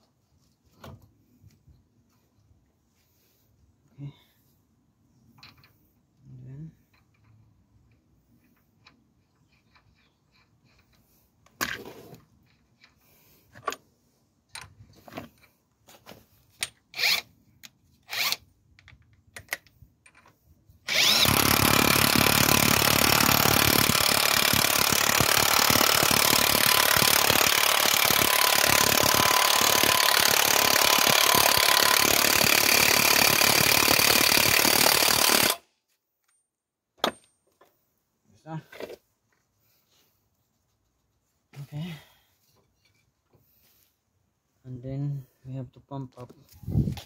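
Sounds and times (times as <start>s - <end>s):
cordless impact wrench hammering: 20.9s - 35.6s.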